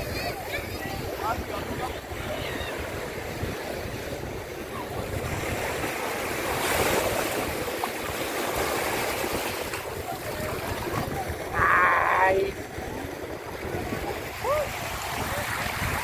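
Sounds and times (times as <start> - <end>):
small waves washing over sand: 0.0 - 16.0.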